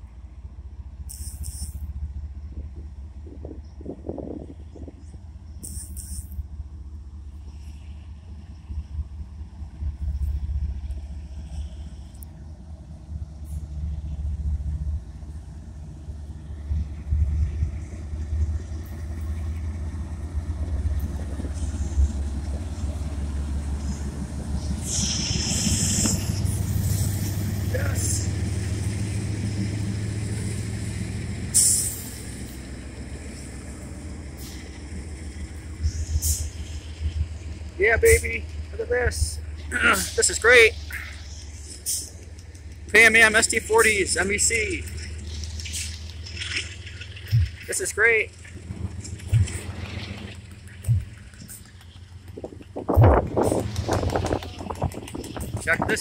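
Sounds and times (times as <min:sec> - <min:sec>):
diesel locomotive rumble: 0:00.0 - 0:56.0
loud burst of high noise: 0:24.8 - 0:28.0.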